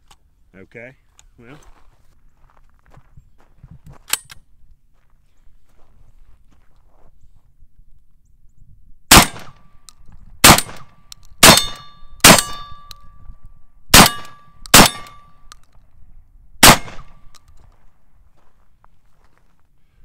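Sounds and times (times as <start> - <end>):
shotgun firing: 9.1 - 9.7, 10.4 - 12.9, 13.9 - 15.3, 16.6 - 17.3.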